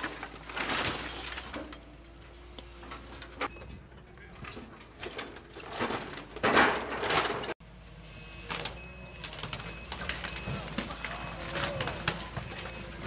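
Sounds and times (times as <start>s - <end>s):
sheet metal crunching and clattering: 4.3s - 7.6s.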